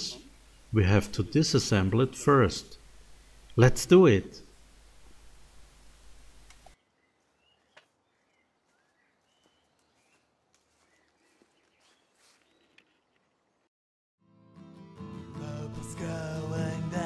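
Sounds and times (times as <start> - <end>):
birds chirping: 6.4 - 13.4.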